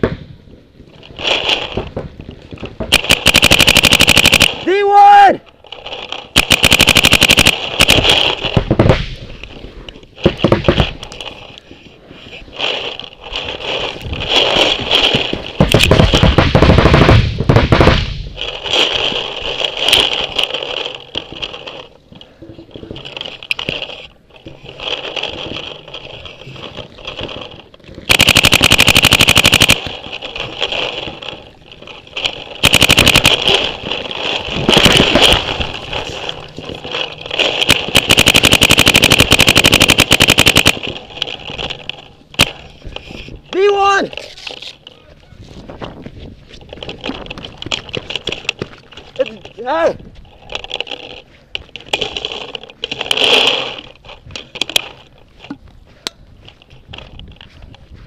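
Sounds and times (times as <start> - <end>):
paintball marker firing: 6.3 - 9.3, 14.2 - 19.2, 28.0 - 31.5, 32.4 - 42.7
scuffling movement: 40.8 - 58.0.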